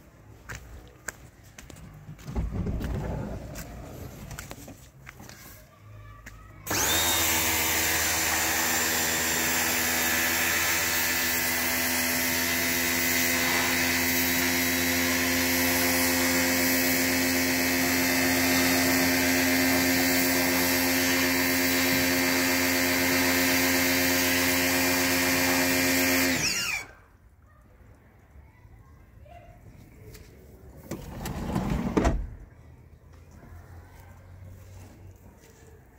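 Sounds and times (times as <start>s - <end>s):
spray gun jetting water: 6.7s - 26.8s
pressure washer motor whine: 6.7s - 26.9s.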